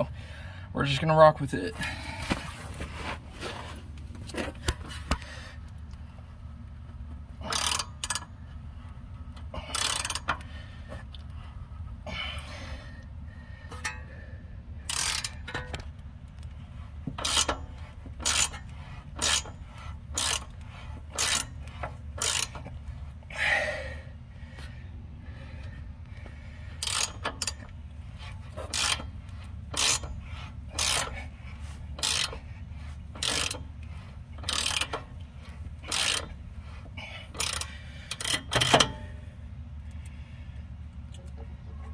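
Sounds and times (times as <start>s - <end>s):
low hum: 1.7s - 41.9s
ratchet clicking: 7.4s - 8.5s, 9.3s - 10.5s, 14.8s - 22.8s, 26.8s - 39.2s.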